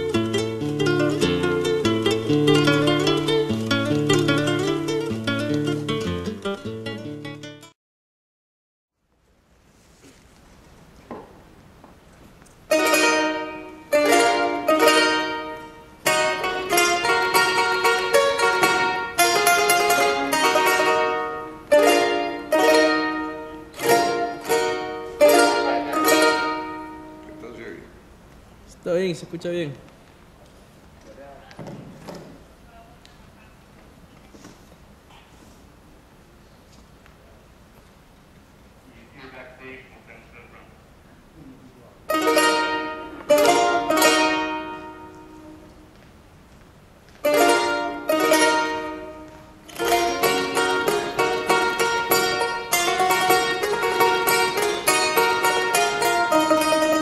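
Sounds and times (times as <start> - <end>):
charango strummed chords: 0.0 - 7.8, 12.7 - 28.2, 42.0 - 46.0, 47.1 - 57.0.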